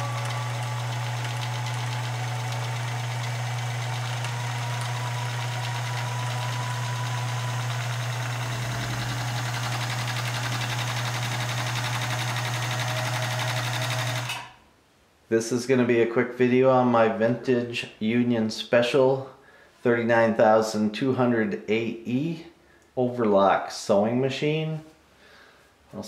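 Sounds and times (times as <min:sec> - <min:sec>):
sewing machine stitching rattle: 0:00.0 - 0:14.5
sewing machine motor hum: 0:00.0 - 0:14.6.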